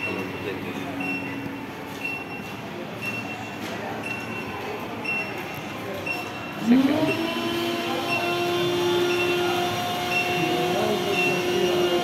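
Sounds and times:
machine motor whine and hum: 6.5s - 12.0s.

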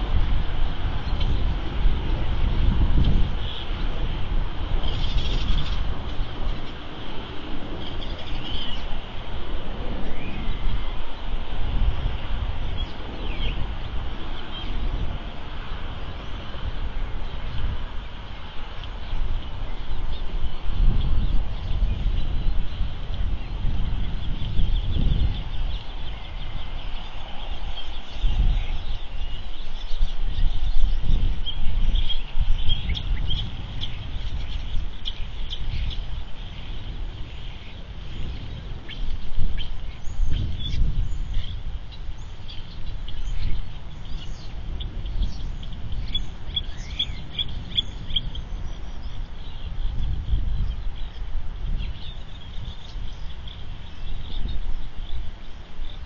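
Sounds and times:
wind rumble on microphone: 0.0s - 56.0s
bird chirps: 4.8s - 9.0s, 18.3s - 56.0s.

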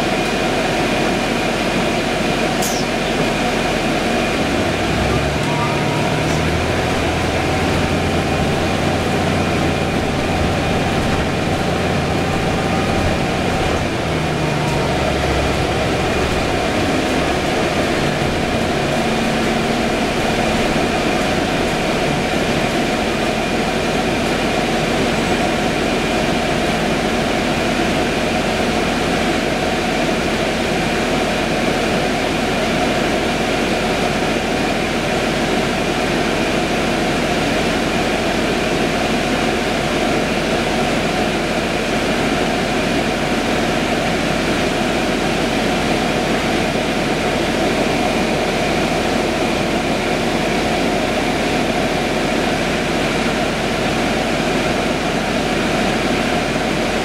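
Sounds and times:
bus drivetrain hum: 0.0s - 57.0s
road and tyre noise: 2.6s - 28.2s
thin high whine: 4.4s - 24.3s.

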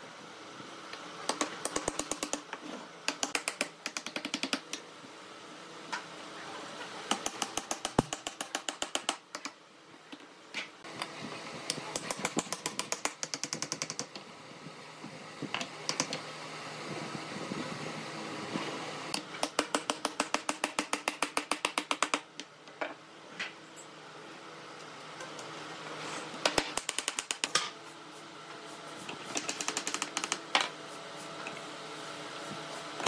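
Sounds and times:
hammer tapping wooden spokes: 3.1s - 4.8s.

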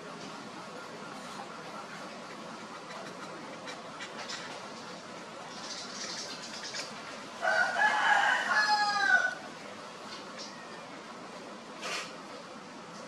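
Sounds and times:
rooster crowing: 7.4s - 9.5s.

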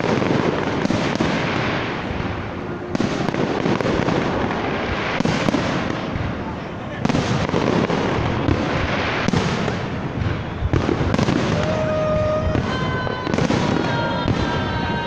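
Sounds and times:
fireworks bangs and crackles: 0.0s - 15.0s
steady tones: 9.8s - 15.0s.

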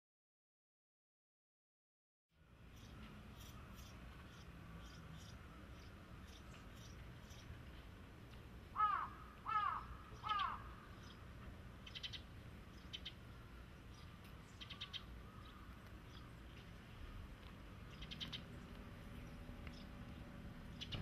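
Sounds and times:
crow cawing: 8.7s - 10.9s.

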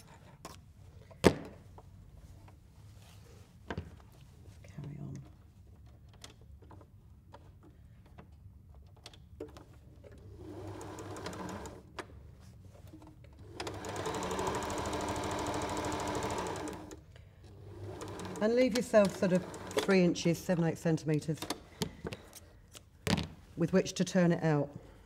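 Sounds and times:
sewing machine stitching: 10.1s - 11.9s, 13.4s - 17.0s, 17.6s - 20.1s.

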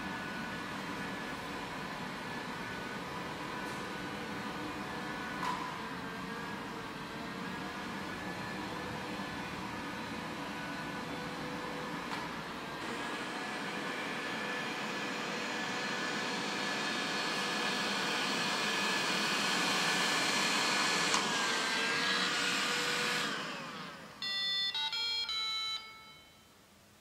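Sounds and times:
electronic beeping tune: 24.2s - 26.5s.

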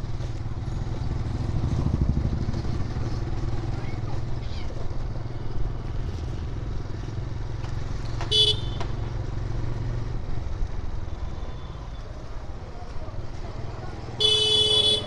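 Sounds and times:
motorcycle engine running: 0.1s - 10.1s.

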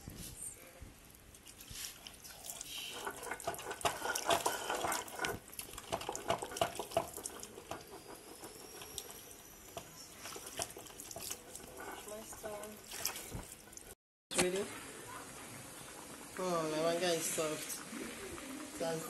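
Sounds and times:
stone grinder wet scraping: 1.3s - 14.0s.

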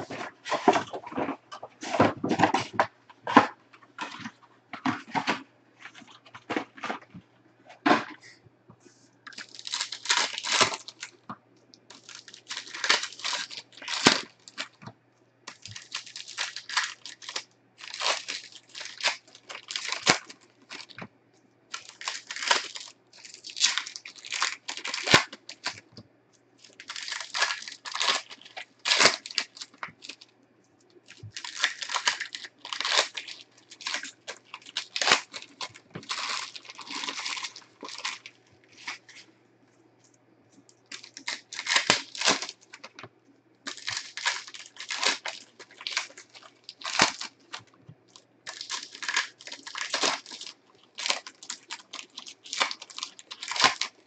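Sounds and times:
card pack wrappers tearing: 9.3s - 11.2s, 11.9s - 14.8s, 15.5s - 21.1s, 21.7s - 25.9s, 26.6s - 30.3s, 31.1s - 39.2s, 40.8s - 43.0s, 43.7s - 54.0s.

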